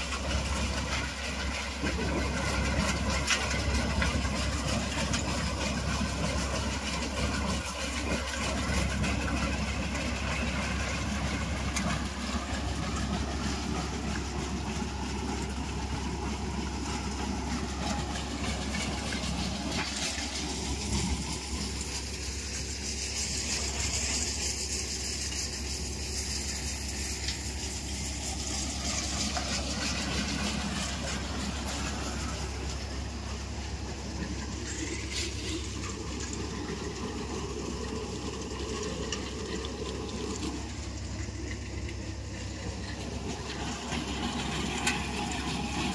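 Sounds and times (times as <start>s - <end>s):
threshing machine droning: 0.0s - 45.9s.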